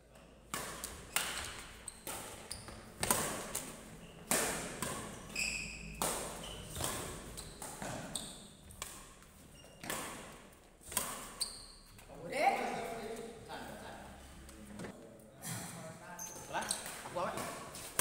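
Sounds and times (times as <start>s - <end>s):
rackets hitting shuttlecock: 0.5s - 11.5s
shoes squeaking on court: 0.8s - 13.3s, 16.2s - 18.0s.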